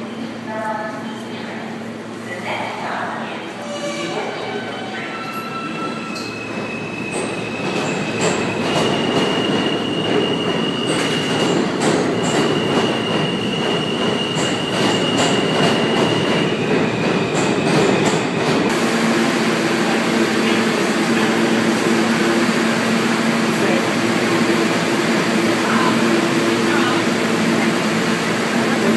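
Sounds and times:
train rumbling: 0.0 - 28.9
train wheels squealing: 3.6 - 18.4.

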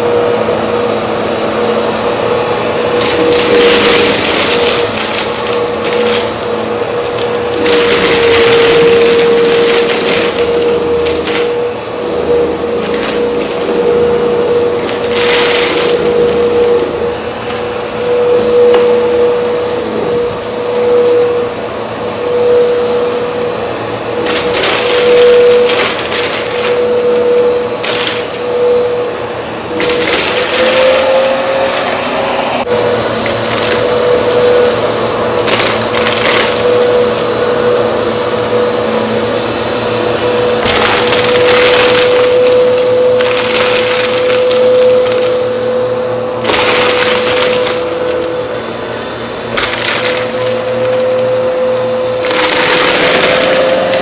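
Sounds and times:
vacuum cleaner motor humming: 0.0 - 54.0
vacuum crackling sucking debris: 3.0 - 17.8, 24.2 - 28.9, 40.6 - 45.7.

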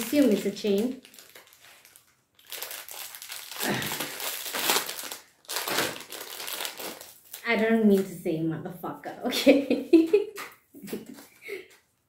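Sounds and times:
plastic bag crinkling: 0.0 - 7.7.

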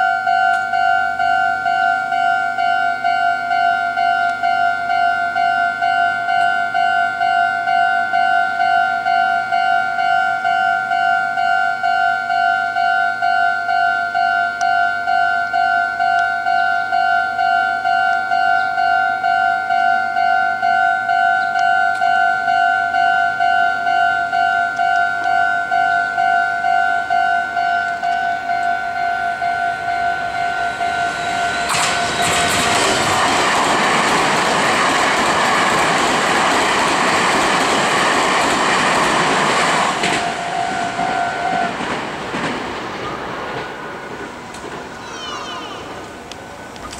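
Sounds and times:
level-crossing alarm two-tone ding: 0.0 - 33.5
electric train passing at speed: 0.0 - 46.9
train wheels clattering on rails: 24.8 - 46.9.

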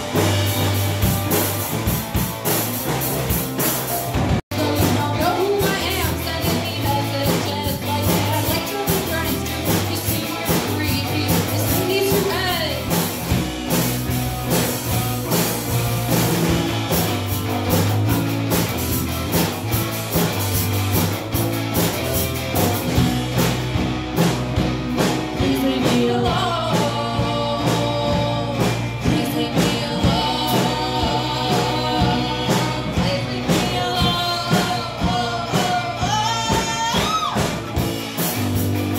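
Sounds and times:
drum kit: 0.0 - 38.9
electric bass: 0.0 - 38.9
electric guitar: 0.0 - 38.9
person singing: 4.5 - 13.0, 25.3 - 37.8.

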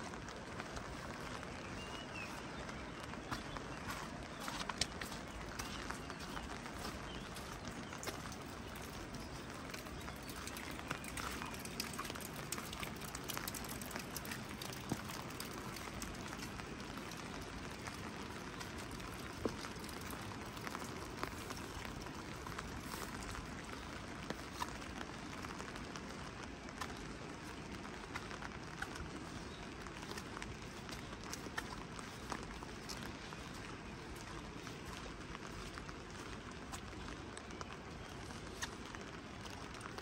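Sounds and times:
steady rain: 0.0 - 40.0
water drips ticking: 0.0 - 40.0.

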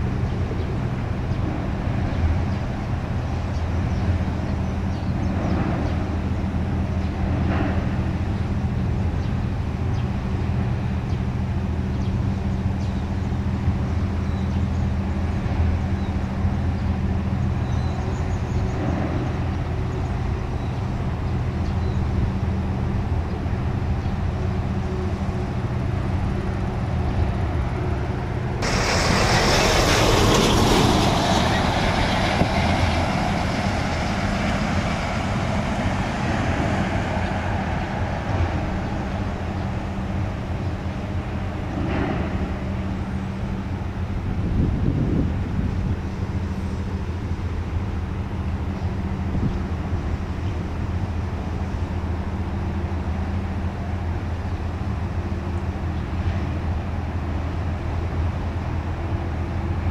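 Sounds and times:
low engine hum: 0.0 - 59.9
road traffic noise: 0.0 - 59.9
vehicle passing close: 28.6 - 40.6.

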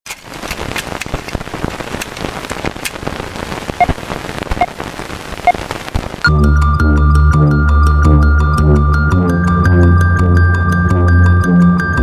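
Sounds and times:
drop-like clicks: 0.1 - 3.0
rain hissing: 0.1 - 6.3.

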